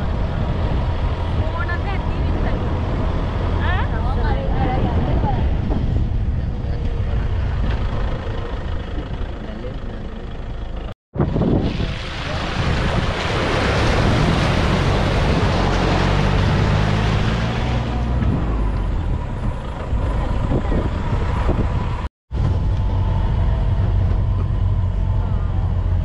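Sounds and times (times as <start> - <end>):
vehicle engine running: 0.0 - 11.0, 18.2 - 26.0
tyres splashing through water: 11.2 - 22.1.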